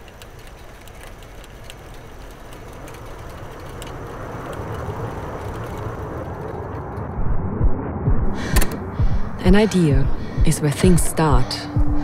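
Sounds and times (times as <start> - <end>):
faint scattered ticks: 0.0 - 6.6.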